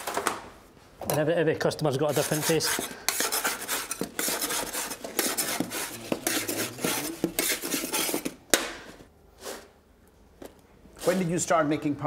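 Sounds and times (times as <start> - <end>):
knife scraping under pies: 1.9 - 8.4, 11.0 - 11.4.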